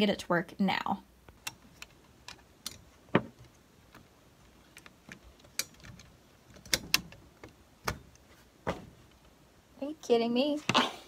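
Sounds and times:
typewriter parts clicking and knocking: 4.8s - 8.2s.

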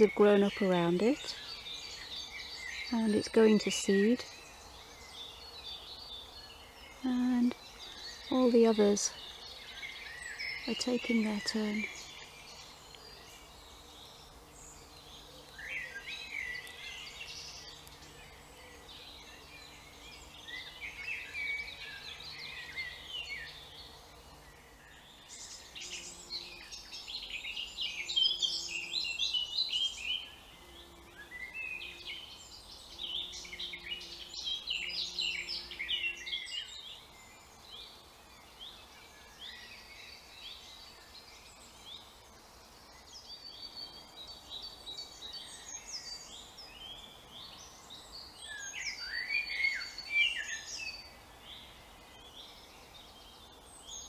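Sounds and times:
songbirds singing: 0.0s - 54.0s.

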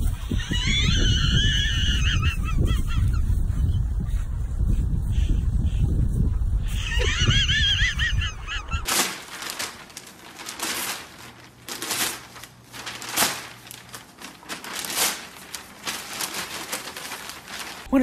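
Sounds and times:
wind rumble on microphone: 0.0s - 8.9s
newspaper crinkling and tearing: 8.8s - 18.0s.

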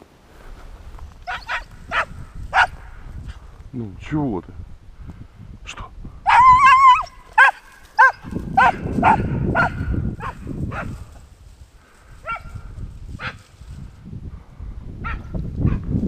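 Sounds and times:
dry grass rustling: 0.0s - 3.7s, 6.3s - 14.2s
dog whining and yelping: 6.3s - 9.7s.

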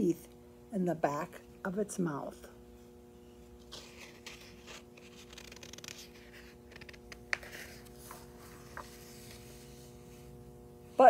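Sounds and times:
faint steady hum: 0.0s - 11.0s
book pages turning: 3.5s - 10.4s.

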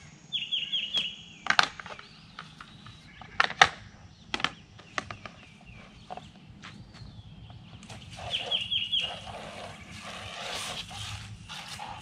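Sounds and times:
paper towel scrubbing plastic lid: 8.0s - 12.0s.

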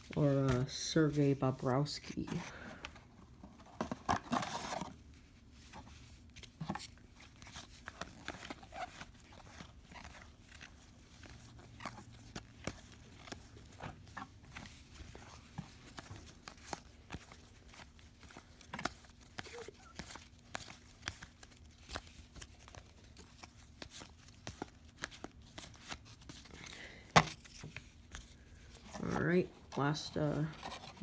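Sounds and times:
trading cards being flipped: 6.0s - 29.2s.

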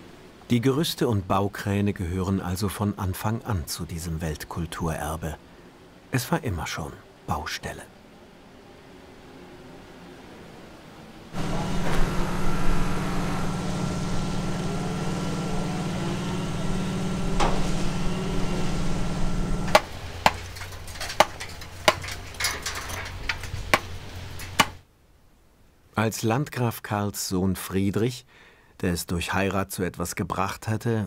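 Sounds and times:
crane motor humming: 11.4s - 24.8s
hammer striking chisel into stone: 21.2s - 22.1s, 24.5s - 24.8s.

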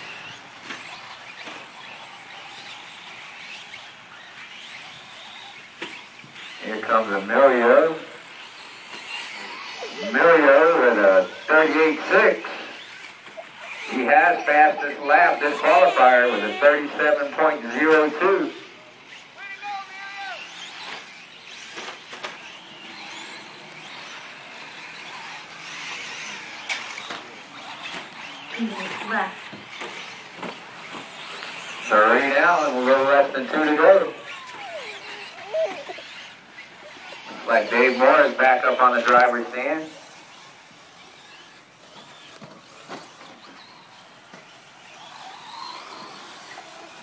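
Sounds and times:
rc truck motor whine: 0.0s - 47.0s
tyres on dirt track: 0.0s - 47.0s.

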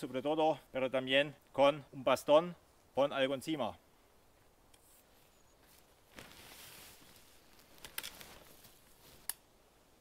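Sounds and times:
tarp rustling: 5.0s - 9.3s.

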